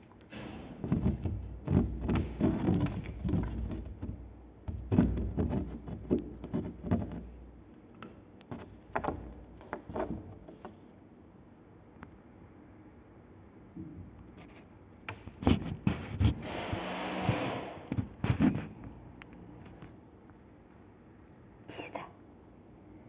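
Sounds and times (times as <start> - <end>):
rustling and soft thumps: 0.4 - 7.7.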